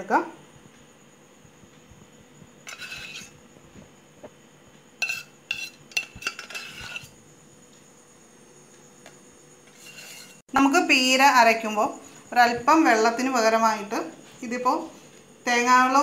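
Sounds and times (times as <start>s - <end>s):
steel spoon scraping a jar: 2.6s - 3.4s, 5.0s - 7.2s, 9.6s - 10.4s.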